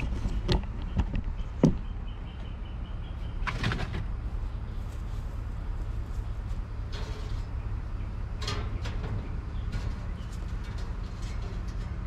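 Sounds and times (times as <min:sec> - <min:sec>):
wire rack rattling: 0:06.8 - 0:12.0.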